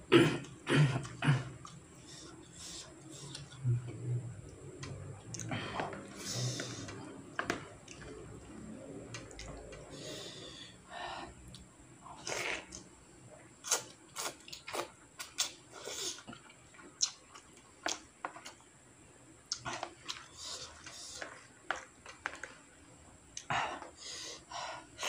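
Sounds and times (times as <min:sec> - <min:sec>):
slurping noodles: 0:12.2 - 0:12.8.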